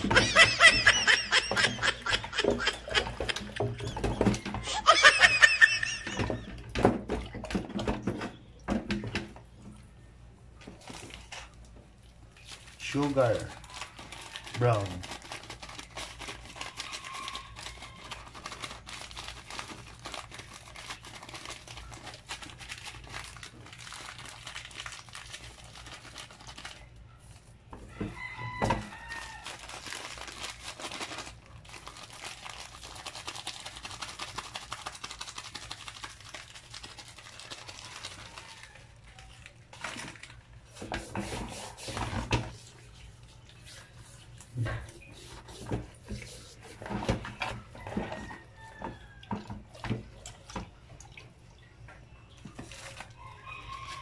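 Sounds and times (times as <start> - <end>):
plastic bag crinkling: 0.0 - 6.4, 10.7 - 27.5, 28.2 - 44.3, 52.5 - 54.0
hands squelching on wet chicken: 11.0 - 51.3.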